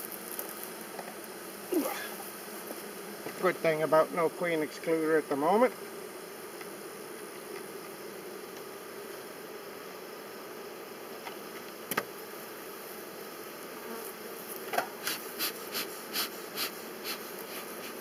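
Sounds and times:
honeybees buzzing: 0:00.0 - 0:18.0
bee smoker bellows puffing: 0:00.2 - 0:08.8, 0:13.8 - 0:18.0.

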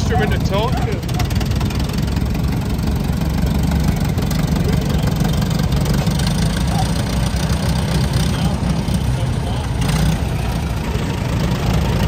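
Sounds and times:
engine idling: 0:00.0 - 0:12.0.

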